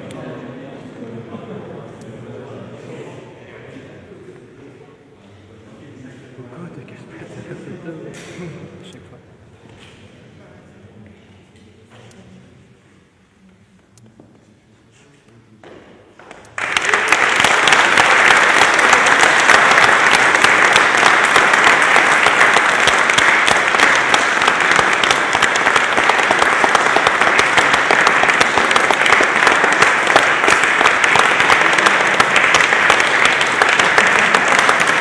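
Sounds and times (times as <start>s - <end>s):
audience applauding: 16.2s - 35.0s.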